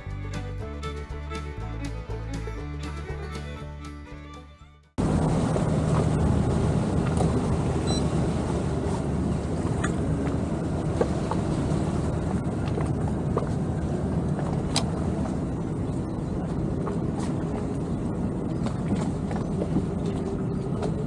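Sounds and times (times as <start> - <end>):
boat engine running: 0.0 - 21.0
wind and water rushing: 5.0 - 21.0.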